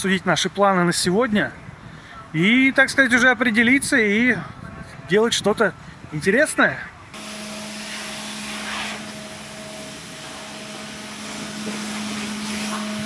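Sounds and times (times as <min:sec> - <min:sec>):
vacuum cleaner humming: 0:07.2 - 0:13.0.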